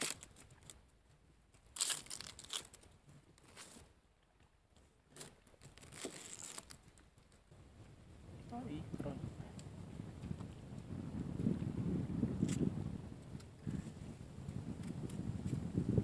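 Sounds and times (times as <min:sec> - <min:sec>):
onion skin crackling and tearing: 0:00.0 - 0:00.8, 0:01.7 - 0:02.9, 0:05.7 - 0:06.8.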